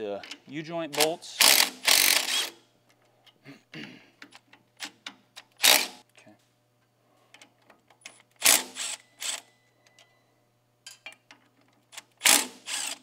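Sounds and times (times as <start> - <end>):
power tool bursts: 1.0 - 2.6, 12.2 - 13.0.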